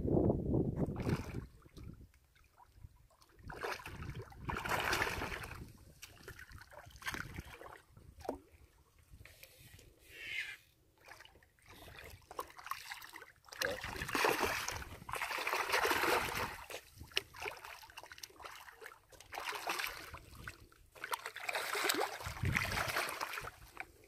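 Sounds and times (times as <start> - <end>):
fish thrashing and splashing: 12.1 - 20.4, 21.0 - 23.8.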